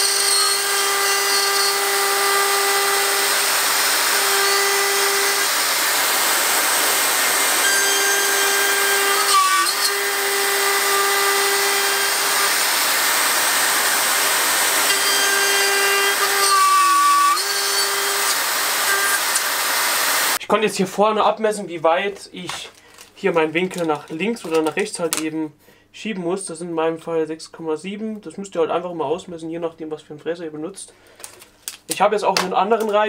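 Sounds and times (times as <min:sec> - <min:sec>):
router bit cutting wood: 0:00.0 - 0:20.4
router motor whine: 0:00.0 - 0:20.4.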